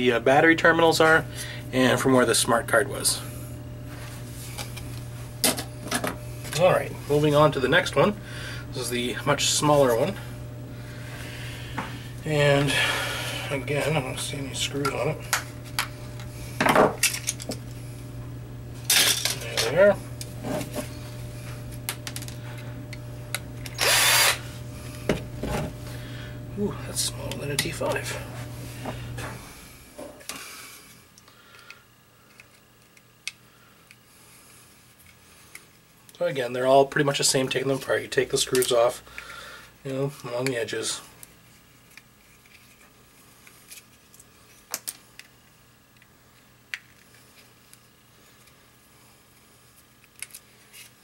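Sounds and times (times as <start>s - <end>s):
cordless drill whine: 19.3s - 26.4s.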